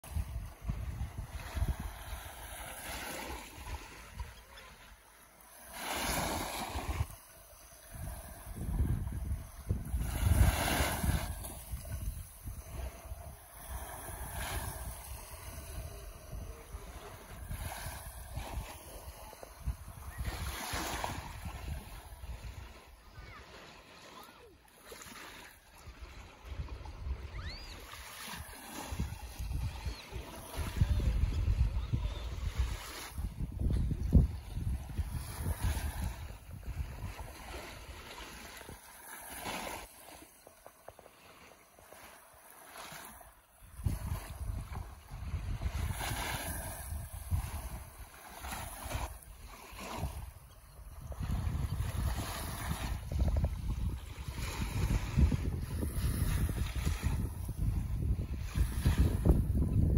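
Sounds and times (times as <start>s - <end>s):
wind buffeting microphone: 0.0s - 4.4s, 5.8s - 23.4s, 25.9s - 38.8s, 43.6s - 59.9s
sea washing at shore: 0.0s - 59.9s
small waves lapping on beach: 0.0s - 59.9s
faint high chirps: 27.3s - 27.9s.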